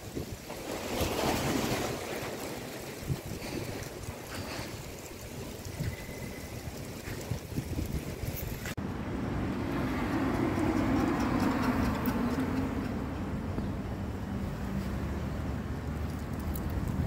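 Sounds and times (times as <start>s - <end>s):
wind buffeting microphone: 0.0s - 14.2s, 15.8s - 17.0s.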